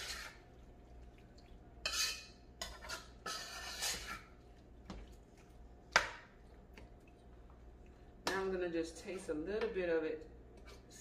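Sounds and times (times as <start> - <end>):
spoon scraping metal pot: 0.0 - 0.4, 1.8 - 4.4.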